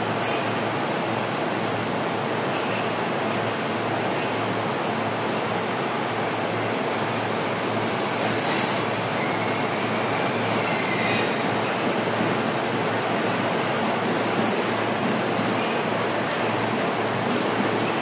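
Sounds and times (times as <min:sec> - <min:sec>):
electric train rumble and hiss: 0:00.0 - 0:18.0
faint high squeal: 0:07.2 - 0:11.3.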